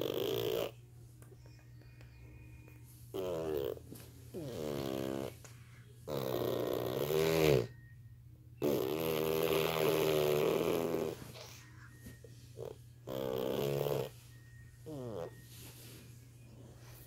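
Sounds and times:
person snoring: 0.0 - 0.8, 3.1 - 5.4, 6.0 - 7.7, 8.6 - 11.5, 12.6 - 14.1, 14.9 - 15.3.

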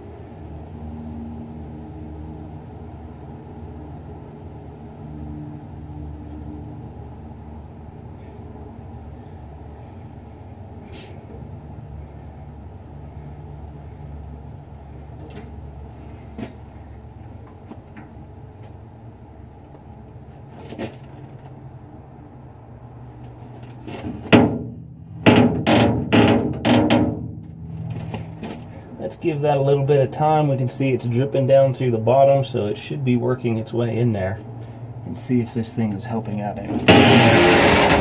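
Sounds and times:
door hinges creaking: 36.7 - 38.0.

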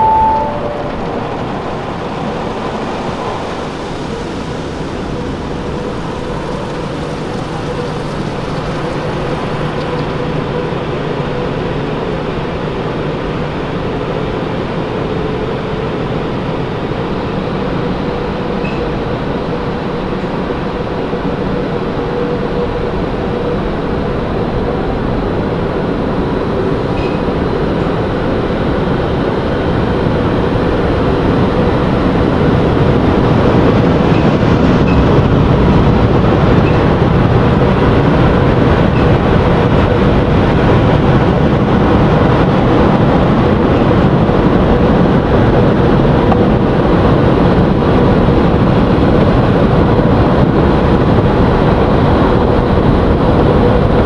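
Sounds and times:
faint hum: 0.0 - 49.7
car wash water spray: 3.5 - 10.0.

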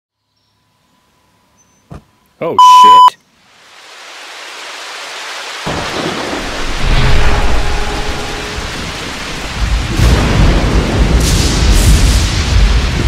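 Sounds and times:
rain hissing: 3.3 - 13.0
sharp thunderclap: 5.7 - 13.0
thunder rumbling: 5.7 - 13.0.

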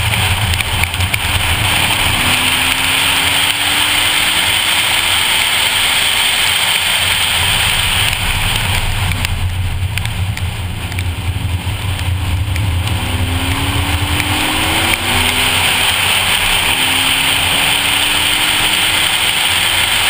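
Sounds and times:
car engine pulling: 0.0 - 20.0
wind: 0.0 - 20.0
hiss of wet tyres and spray: 1.2 - 9.5, 12.8 - 20.0.

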